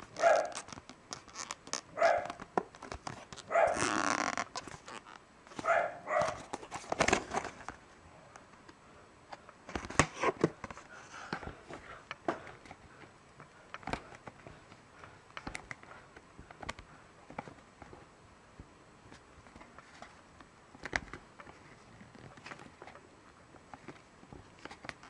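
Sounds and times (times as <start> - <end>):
blister pack crackling: 0.0 - 5.2.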